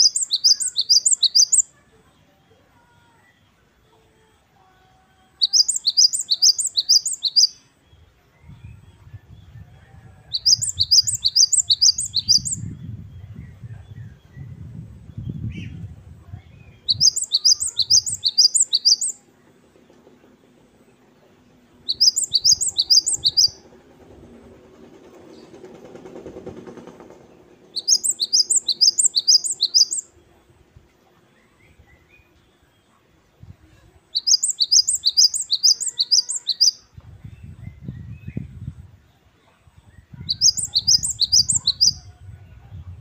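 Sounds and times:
bird singing whistled phrases: 0.0s - 1.7s, 5.4s - 7.6s, 10.3s - 13.3s, 16.5s - 19.2s, 21.9s - 23.6s, 27.8s - 30.1s, 34.1s - 36.8s, 40.2s - 42.1s.

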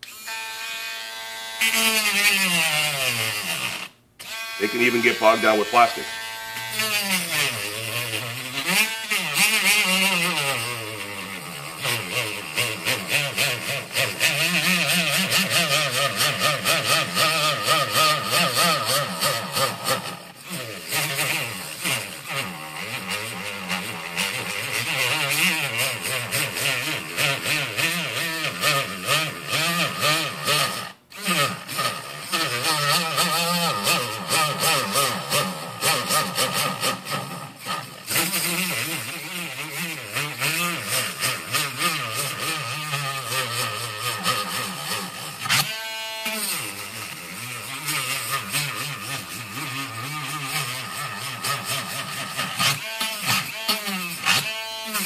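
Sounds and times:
rotary tool cutting plastic: 0.0s - 55.0s.

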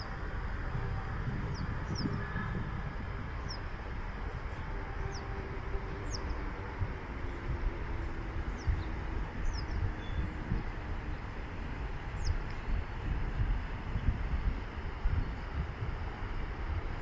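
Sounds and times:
low uneven rumble: 0.0s - 17.0s
small birds chirping: 8.5s - 10.4s.

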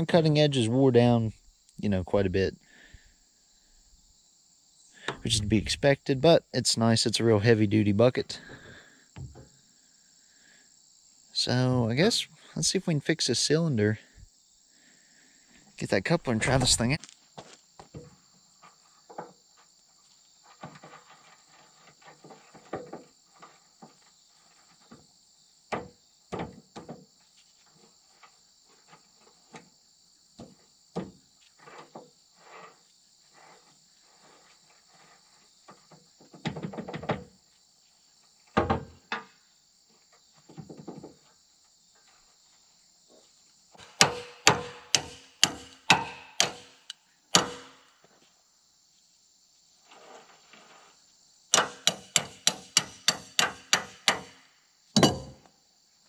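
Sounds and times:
insects chirring: 0.0s - 56.0s
hand tools knocking on steel: 43.8s - 46.8s, 51.6s - 54.4s, 55.0s - 55.4s.

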